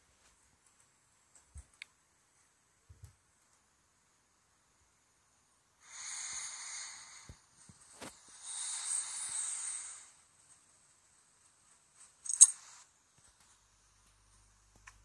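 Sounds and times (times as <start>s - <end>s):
long hissing breaths: 5.8s - 10.4s.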